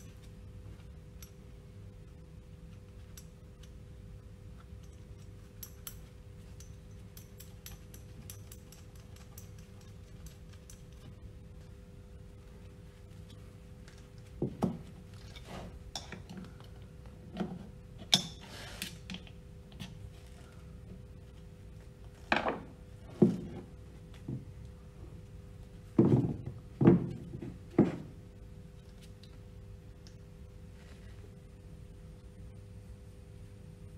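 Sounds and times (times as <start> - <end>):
metal parts knocking on wooden bench: 22.3 - 23.6, 26.0 - 28.1.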